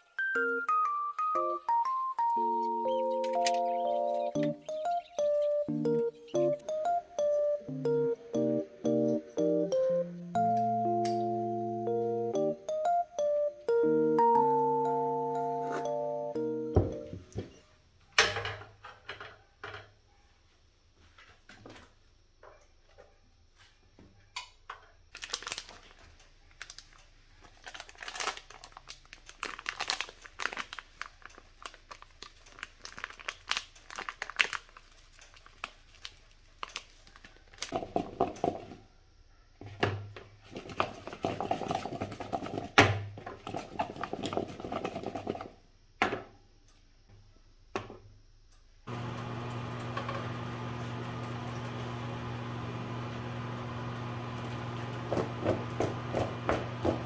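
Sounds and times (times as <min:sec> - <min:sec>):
plastic packet crinkling: 0:25.1 - 0:38.0
potato wedges rattling in plastic bowl: 0:40.4 - 0:42.8, 0:43.4 - 0:45.5.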